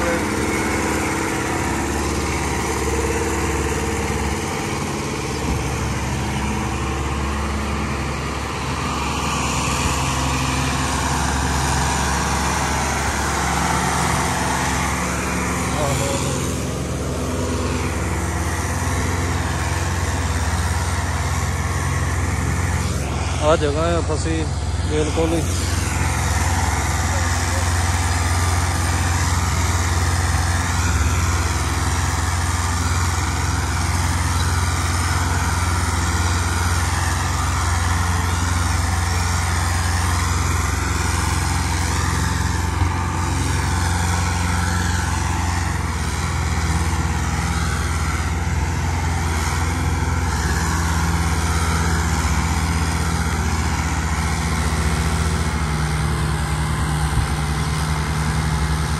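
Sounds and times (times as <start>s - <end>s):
tractor diesel engine under load: 0.0s - 58.9s.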